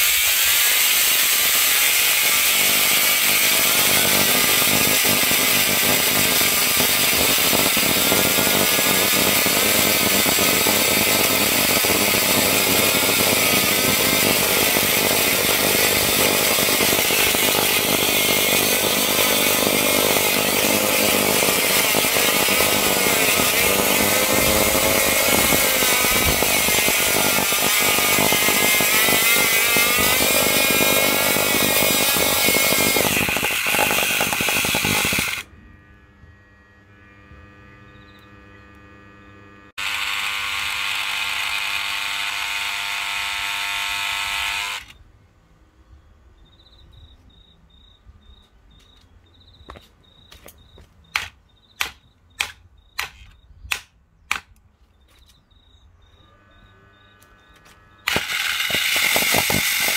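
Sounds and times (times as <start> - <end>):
vacuum cleaner motor whine: 3.5 - 45.0, 56.2 - 59.9.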